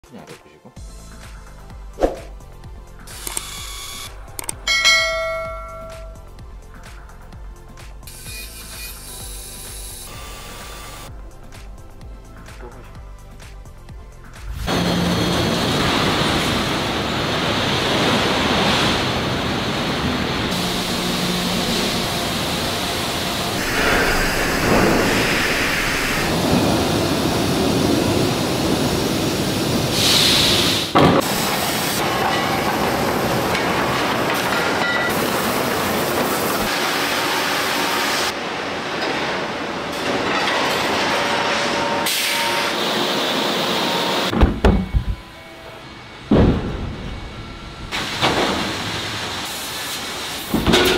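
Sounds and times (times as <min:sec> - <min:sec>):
steel mill machinery rumble and clatter: 0:10.2 - 0:50.9.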